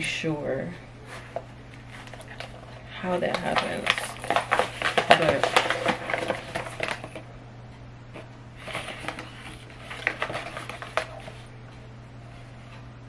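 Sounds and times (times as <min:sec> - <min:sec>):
steady low hum: 0:00.0 - 0:13.0
cardboard box rustling: 0:01.1 - 0:07.2, 0:08.2 - 0:11.5.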